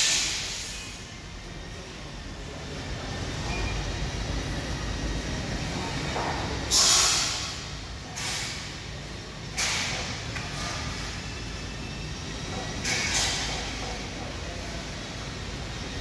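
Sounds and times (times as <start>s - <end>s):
short hissing bursts: 0.0s - 0.9s, 6.7s - 7.6s.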